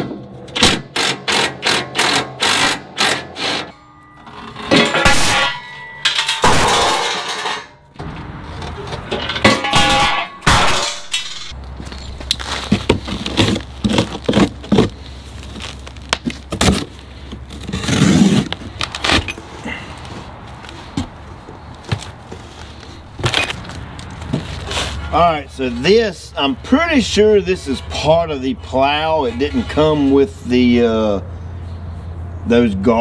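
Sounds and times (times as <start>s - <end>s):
metal parts clanking and rattling: 0.5s - 14.9s, 18.7s - 19.8s.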